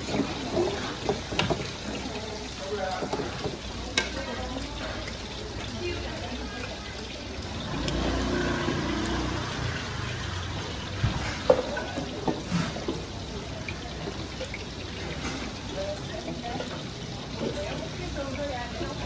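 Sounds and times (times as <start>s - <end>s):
kitchen utensils clinking: 0.0s - 7.0s, 11.0s - 19.0s
liquid poured in steel bucket: 0.0s - 19.0s.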